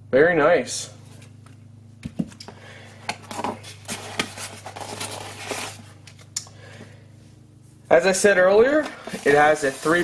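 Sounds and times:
hands handling foam packaging: 0:02.1 - 0:06.2, 0:08.8 - 0:10.0.

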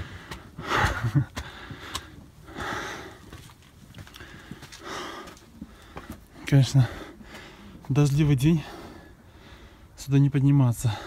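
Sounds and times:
person breathing hard: 0:00.0 - 0:07.9, 0:08.6 - 0:10.0
footsteps on stone steps: 0:00.0 - 0:09.8.

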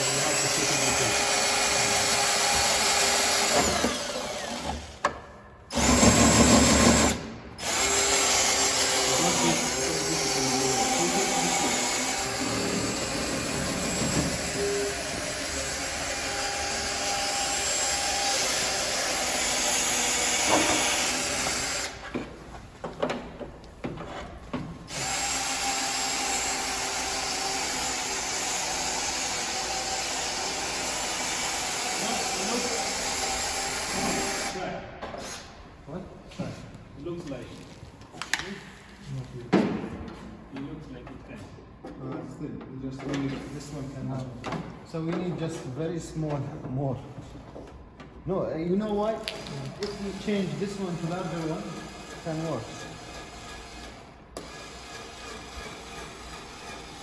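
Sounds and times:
cordless drill whining: 0:00.0 - 0:05.0, 0:05.7 - 0:22.0, 0:24.9 - 0:34.6.

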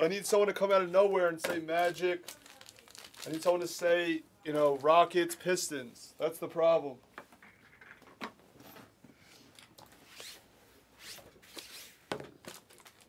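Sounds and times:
rustling and scraping handling: 0:07.2 - 0:13.0.

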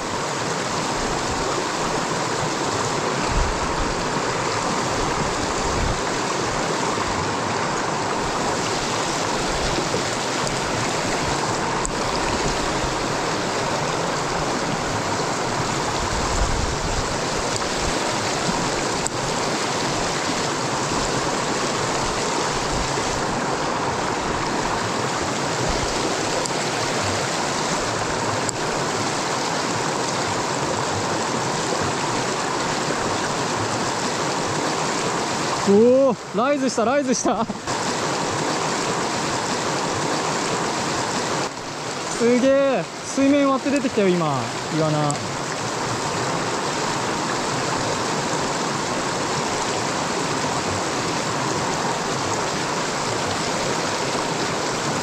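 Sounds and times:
stream rushing: 0:00.0 - 0:55.0.

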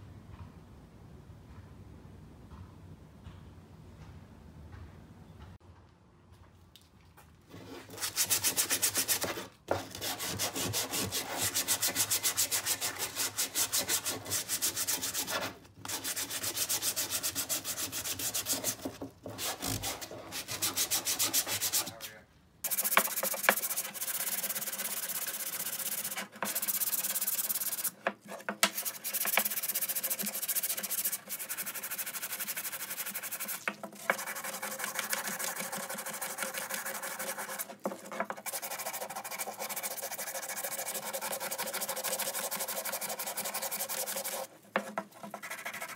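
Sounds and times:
sandpaper rubbing on wood: 0:07.9 - 0:22.0, 0:22.6 - 0:28.0, 0:28.6 - 0:44.5, 0:45.3 - 0:45.9.

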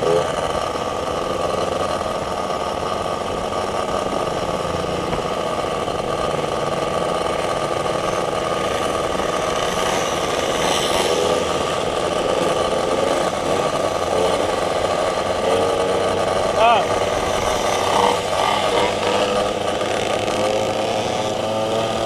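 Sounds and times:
moped engine running: 0:00.0 - 0:22.0.

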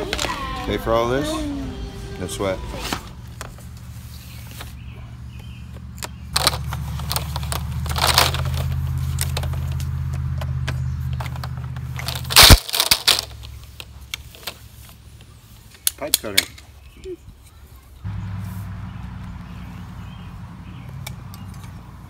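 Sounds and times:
plastic and tape crackling: 0:00.0 - 0:00.8, 0:05.4 - 0:17.6.

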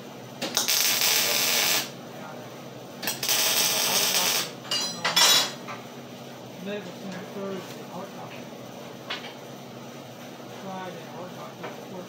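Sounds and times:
welding arc crackling: 0:00.4 - 0:02.0, 0:03.0 - 0:04.6.

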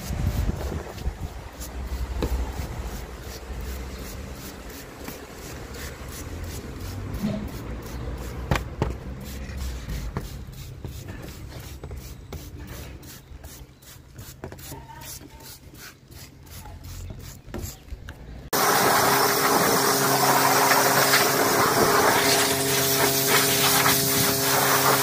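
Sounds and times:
rough rubbing handling noise: 0:00.0 - 0:17.9.

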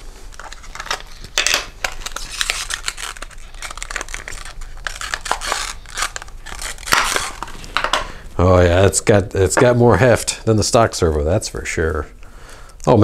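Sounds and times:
packaging tearing and crinkling: 0:00.3 - 0:07.9.

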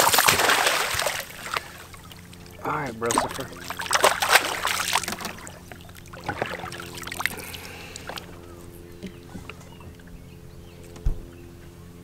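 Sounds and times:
fish thrashing and splashing: 0:00.0 - 0:09.4.

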